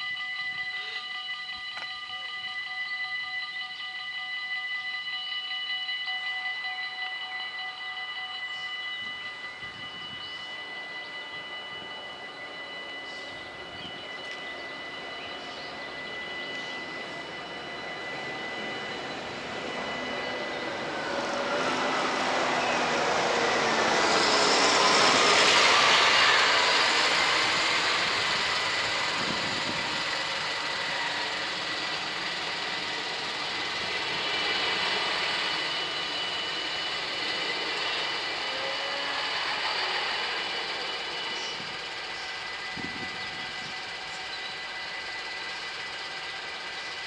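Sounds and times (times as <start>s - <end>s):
diesel railcar passing: 0.0s - 47.0s
level crossing warning bells: 0.0s - 47.0s
tractor diesel engine passing: 14.3s - 43.0s.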